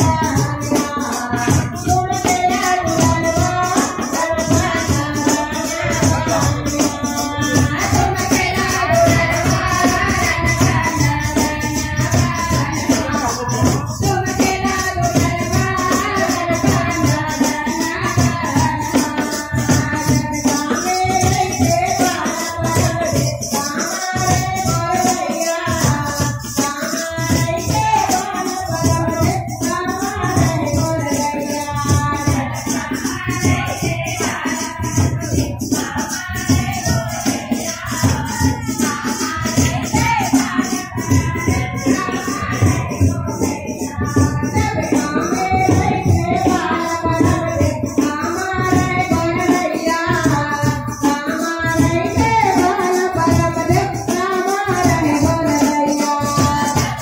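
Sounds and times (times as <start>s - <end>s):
barrel drum: 0.0s - 57.0s
rapid jingling beat: 0.0s - 57.0s
women singing: 0.0s - 57.0s.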